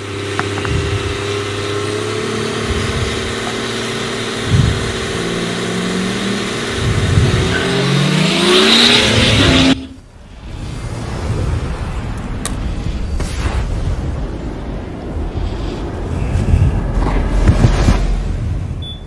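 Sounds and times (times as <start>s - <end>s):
diesel drag car engine revving: 0.0s - 10.0s.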